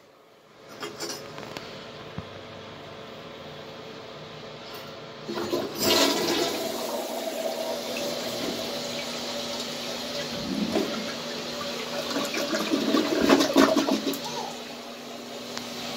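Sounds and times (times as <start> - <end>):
toilet flushing: 5.2 - 15.9.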